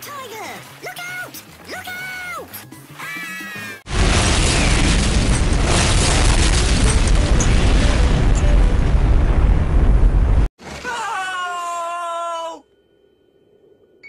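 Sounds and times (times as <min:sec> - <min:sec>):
deep rumble: 0:03.9 - 0:10.5
explosion blast: 0:03.9 - 0:10.5.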